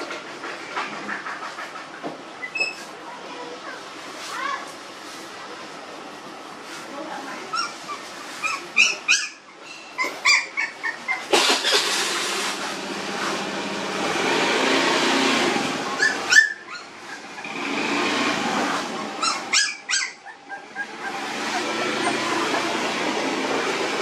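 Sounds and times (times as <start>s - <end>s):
puppies squealing: 2.4s - 2.8s, 7.5s - 12.1s, 15.9s - 18.1s, 19.0s - 24.0s.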